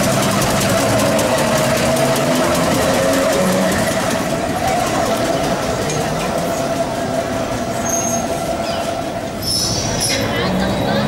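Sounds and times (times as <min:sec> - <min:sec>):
tram motor whine: 0:00.0 - 0:11.0
wheels rumbling on rails: 0:00.0 - 0:11.0
high wheel squeal: 0:05.7 - 0:11.0.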